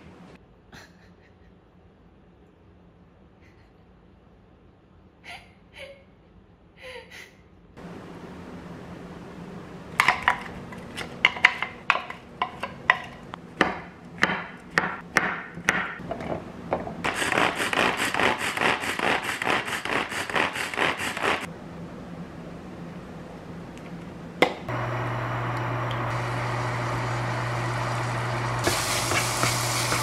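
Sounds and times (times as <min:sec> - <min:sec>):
knife chopping on wooden board: 0:11.2 - 0:16.0.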